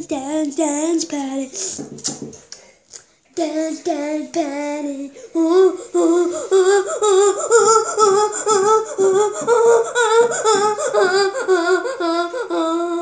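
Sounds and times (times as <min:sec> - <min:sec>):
girl humming sing-song: 0:03.3 - 0:13.0.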